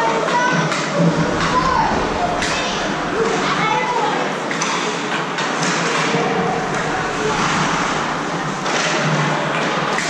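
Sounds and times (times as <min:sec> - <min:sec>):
spectators' voices: 0:00.4 - 0:04.6, 0:05.8 - 0:10.0.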